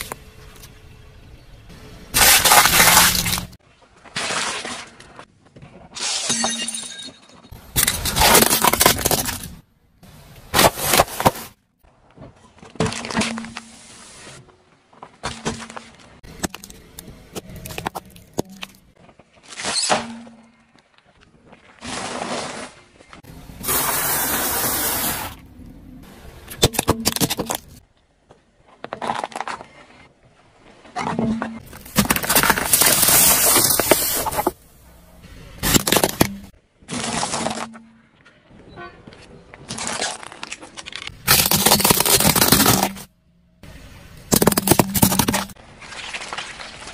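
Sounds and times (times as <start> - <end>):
tyre crushing objects: 2.1 - 6.1, 7.8 - 9.6, 10.5 - 11.6, 31.0 - 34.6, 35.6 - 38.0, 39.6 - 43.1, 44.3 - 45.6.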